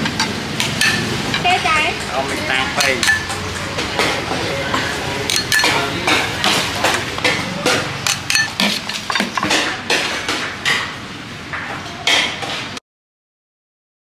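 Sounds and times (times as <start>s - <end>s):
metal utensils clinking on cookware: 0.0s - 11.0s.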